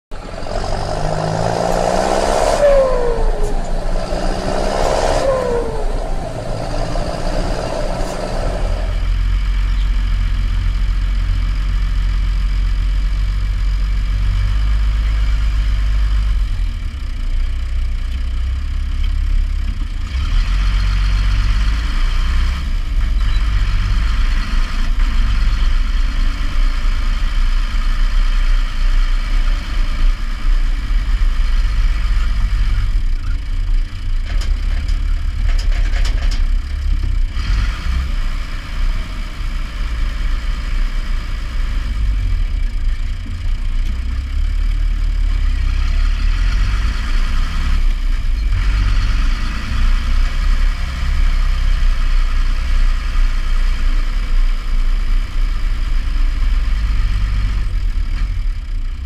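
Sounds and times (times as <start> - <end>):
tractor diesel engine running: 0.1 - 59.0
intro swoops: 0.2 - 9.4.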